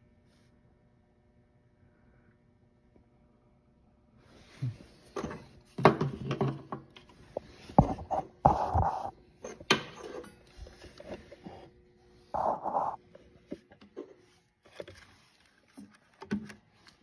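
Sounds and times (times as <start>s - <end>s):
rubbing scrape: 7.8s - 9.1s, 12.4s - 13.0s.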